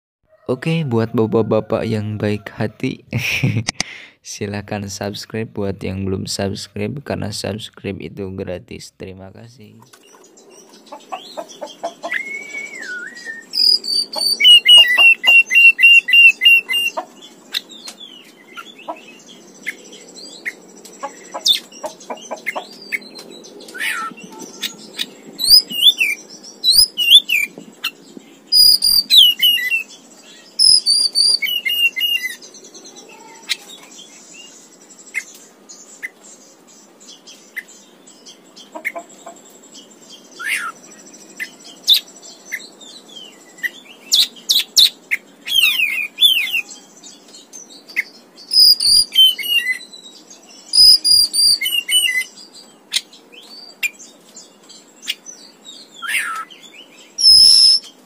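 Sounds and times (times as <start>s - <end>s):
bird singing whistles and chirps: 12.0s - 20.6s, 22.6s - 36.1s, 39.8s - 54.0s, 54.8s - 58.0s.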